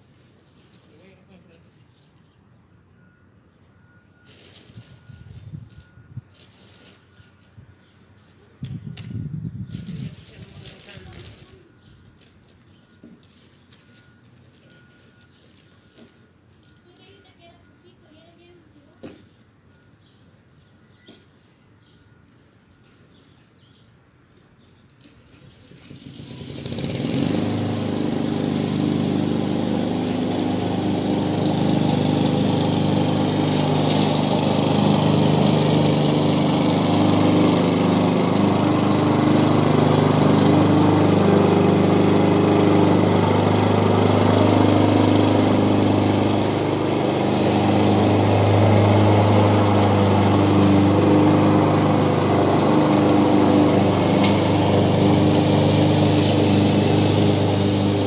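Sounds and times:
lawn mower engine running: 25.1s - 58.0s.

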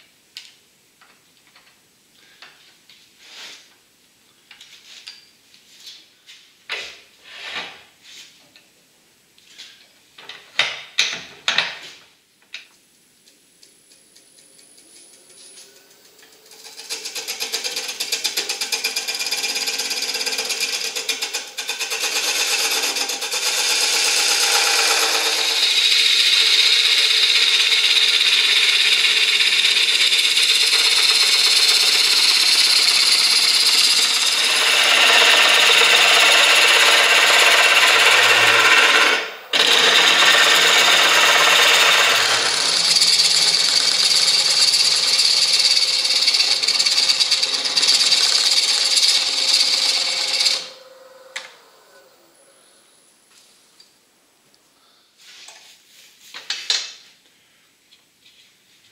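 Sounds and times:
gouge cutting wood on a lathe: 16.6s - 50.8s.

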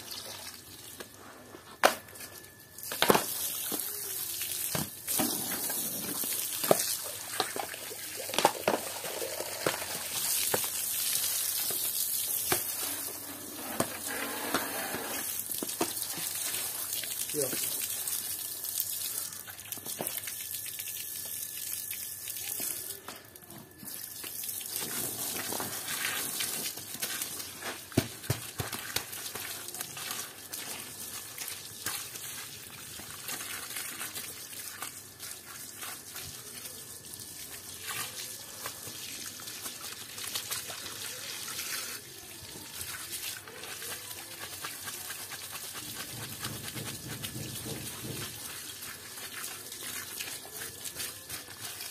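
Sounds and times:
hands scrubbing wet fabric: 43.1s - 51.9s.

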